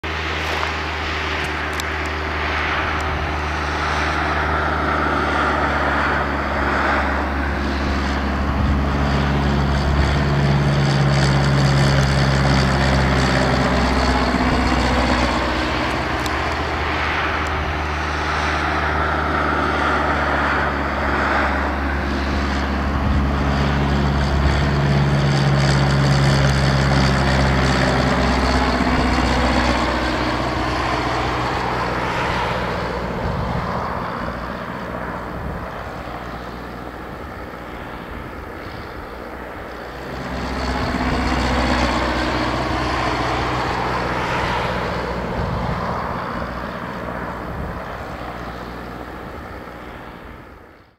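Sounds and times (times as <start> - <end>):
propeller plane droning overhead: 0.0 - 50.9.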